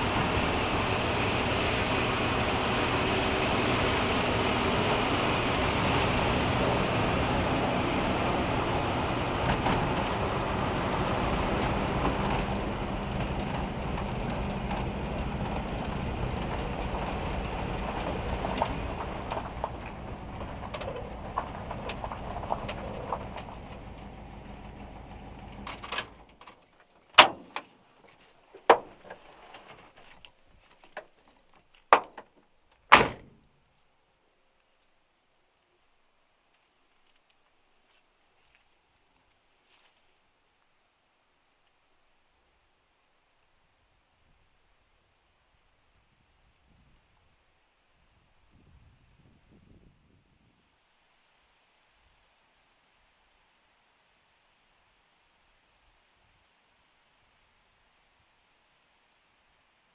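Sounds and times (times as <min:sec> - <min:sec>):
van engine and road noise: 0:00.0 - 0:33.5
door latch clicks and clunks: 0:27.2 - 0:27.7, 0:32.0 - 0:33.4.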